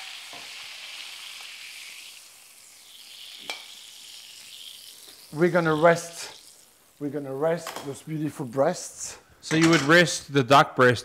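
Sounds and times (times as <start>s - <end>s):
fat sizzling in a pan: 0.0s - 9.5s.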